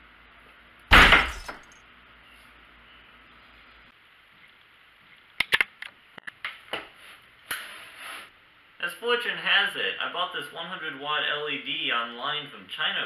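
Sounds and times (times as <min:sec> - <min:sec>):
loud crash: 0:00.9 - 0:01.7
television static hiss: 0:08.4 - 0:13.0.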